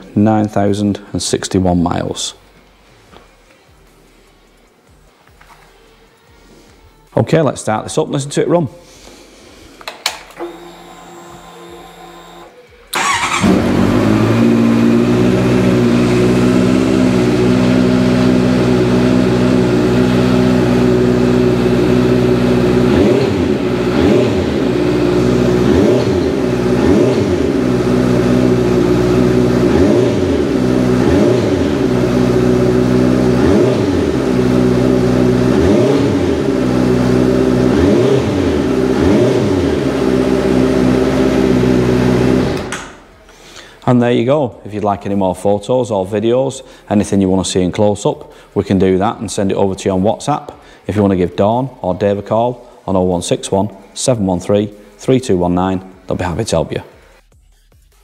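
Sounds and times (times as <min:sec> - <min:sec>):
motorcycle engine starting: 0:09.9 - 0:43.1
engine revving in blips: 0:10.4 - 0:42.9
motorcycle engine idling: 0:13.0 - 0:42.5.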